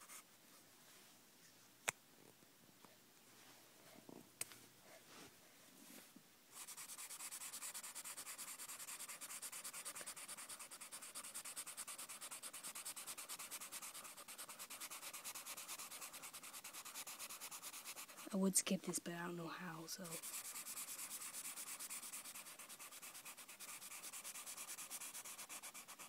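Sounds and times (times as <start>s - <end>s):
marker scribbling on paper: 6.5s - 19.0s, 19.9s - 26.0s.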